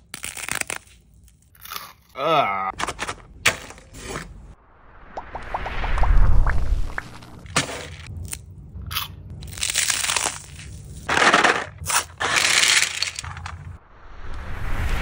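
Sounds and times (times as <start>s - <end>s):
candy crunching: 7.5s - 13.6s.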